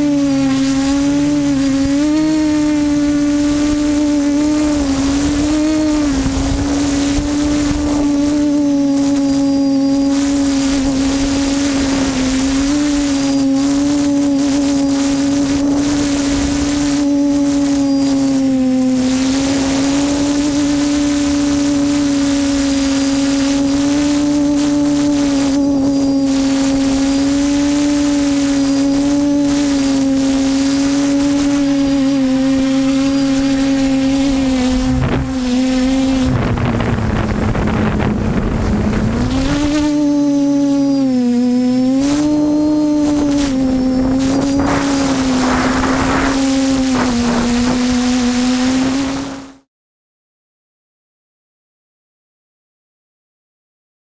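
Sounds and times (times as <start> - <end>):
drone motors whining: 0.0 - 49.7.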